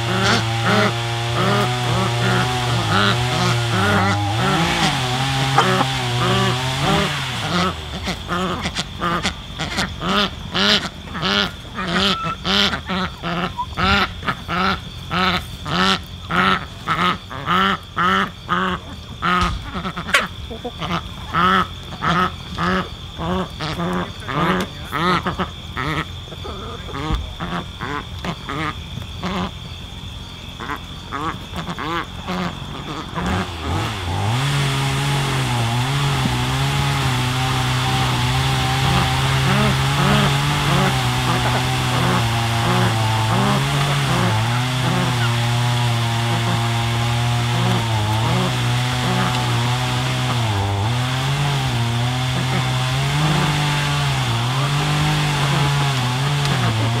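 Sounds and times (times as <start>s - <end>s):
small petrol engine running: 0.0s - 17.0s, 30.6s - 57.0s
duck quacking: 0.0s - 29.5s, 30.6s - 46.7s.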